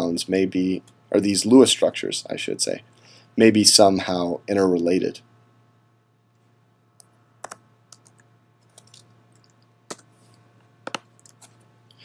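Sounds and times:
faint low hum: 0:00.0 - 0:12.0
computer clicks: 0:07.0 - 0:10.1.

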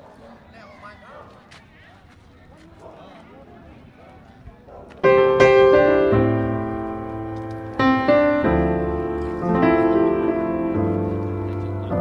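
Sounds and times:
slow piano piece: 0:05.0 - 0:12.0.

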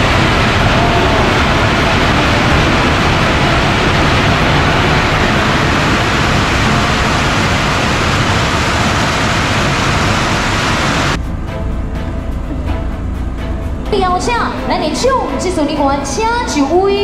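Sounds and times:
firecrackers crackling: 0:00.0 - 0:11.2.

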